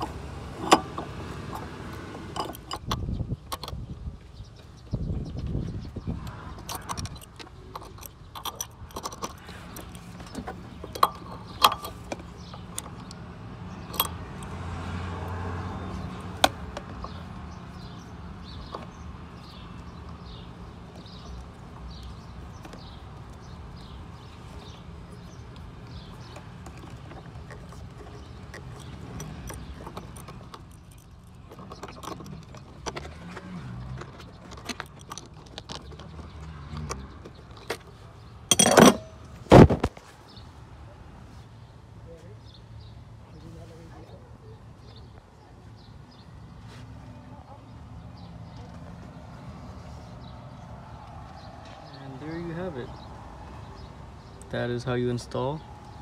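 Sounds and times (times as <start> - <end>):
metal tools clinking on fittings: 0.6 - 3.8, 6.5 - 14.6, 24.6 - 33.3, 38.5 - 39.2.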